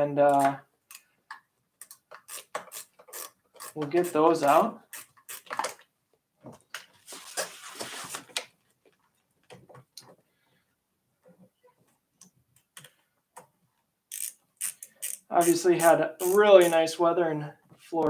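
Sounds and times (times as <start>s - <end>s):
short rustle: 7.0s - 8.4s
tool clicking on handlebar: 16.2s - 16.8s.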